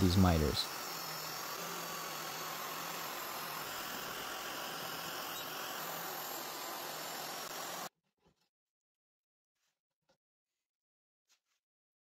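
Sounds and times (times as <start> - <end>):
biscuit joiner running: 0.0 - 7.9.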